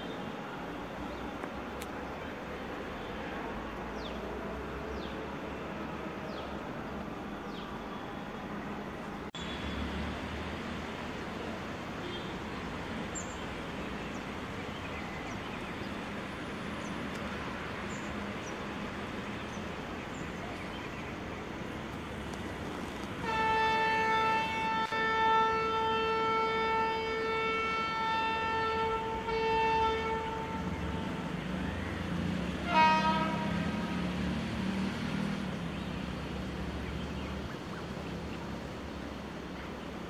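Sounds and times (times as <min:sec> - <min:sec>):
locomotive horn blast: 0:23.2 - 0:31.4, 0:32.5 - 0:34.2.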